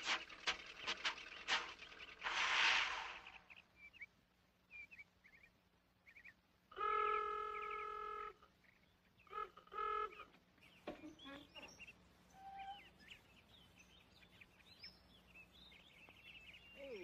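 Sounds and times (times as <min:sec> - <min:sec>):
brief rush of noise: 0:02.2 - 0:03.4
vehicle horn honking: 0:06.8 - 0:08.4, 0:09.3 - 0:10.2
faint bird-like chirps: 0:07.2 - 0:17.0.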